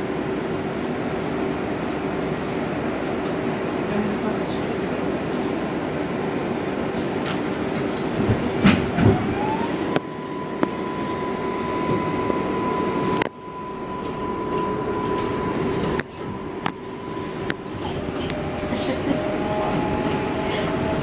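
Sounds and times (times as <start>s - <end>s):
train wheels rumbling on rail: 0.0s - 21.0s
train motor whine: 7.8s - 21.0s.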